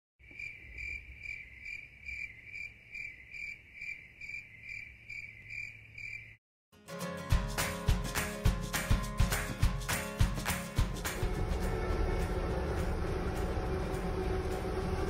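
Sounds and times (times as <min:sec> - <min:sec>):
insect chirping: 0:00.2 - 0:06.4.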